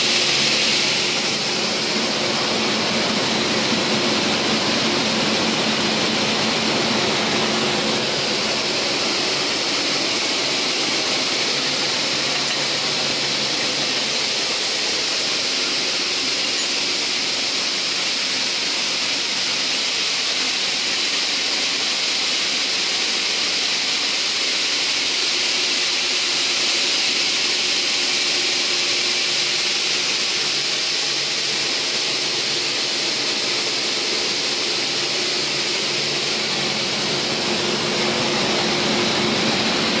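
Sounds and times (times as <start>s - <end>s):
saw shafts high-pitched hiss: 0.0s - 3.6s, 7.6s - 38.3s
chain-driven feed track turning: 8.0s - 20.3s.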